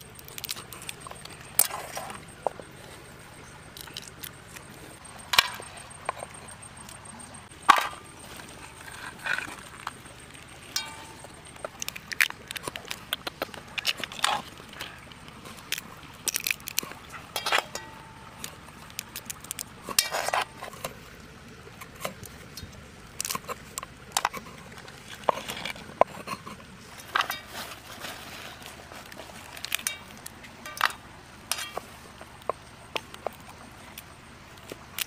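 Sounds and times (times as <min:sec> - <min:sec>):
crab shells cracking and snapping: 0:00.1 - 0:02.3, 0:03.7 - 0:04.7, 0:09.3 - 0:17.7, 0:18.4 - 0:20.0, 0:23.1 - 0:25.8, 0:29.4 - 0:35.0.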